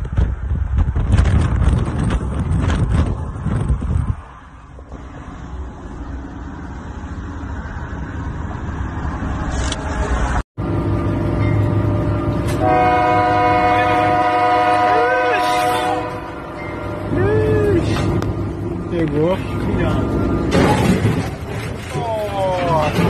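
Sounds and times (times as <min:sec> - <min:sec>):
wind and road noise in car: 0:00.0 - 0:12.6
train horn chord: 0:12.5 - 0:16.9.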